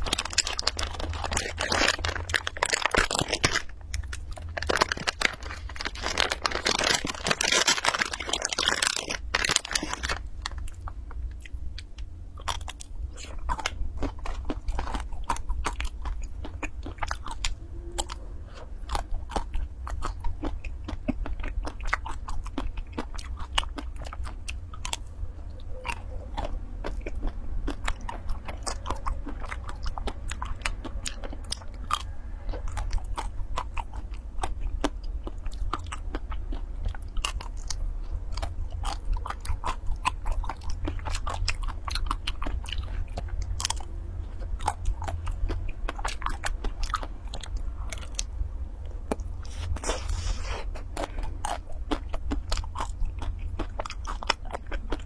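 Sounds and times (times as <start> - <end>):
crunchy ice cream bar chewing: 0.0 - 55.0
steady low hum: 0.0 - 55.0.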